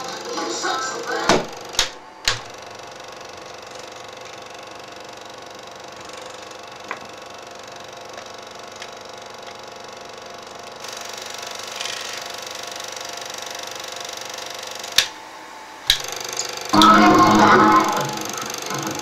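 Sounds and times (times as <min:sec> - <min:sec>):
film projector rattling: 0:17.5 - 0:19.0.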